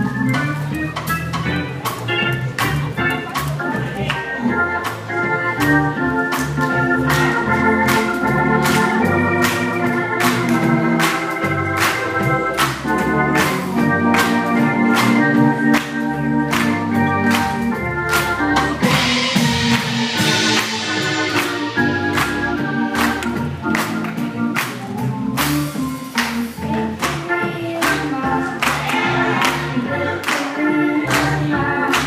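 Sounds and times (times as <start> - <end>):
bass line: 0.0 - 32.0
church organ gospel chords: 0.0 - 32.0
sharp percussive hits: 18.8 - 23.9.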